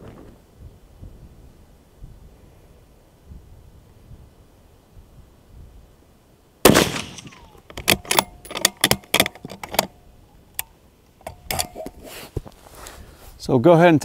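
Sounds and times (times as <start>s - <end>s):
rifle shot with echo: 6.6s - 8.3s
rifle bolt metallic clicks: 6.8s - 11.8s.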